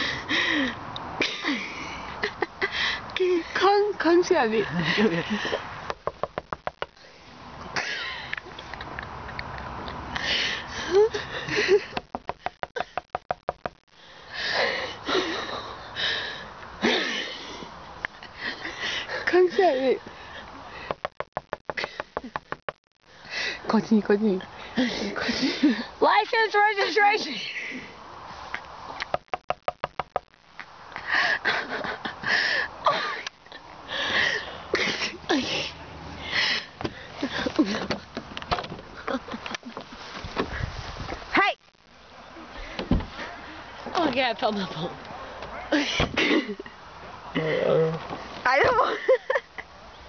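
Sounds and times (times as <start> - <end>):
rapid knocking on car window: 5.8 - 7.0, 11.9 - 13.8, 20.9 - 22.8, 29.1 - 30.4
stifled giggling: 31.2 - 33.7, 48.6 - 49.7.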